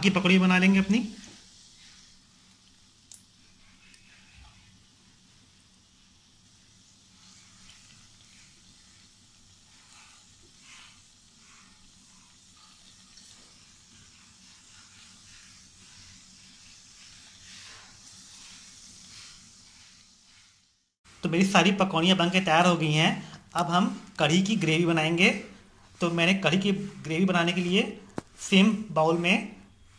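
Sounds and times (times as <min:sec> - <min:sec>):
food deep-frying in oil: 0:00.0 - 0:29.9.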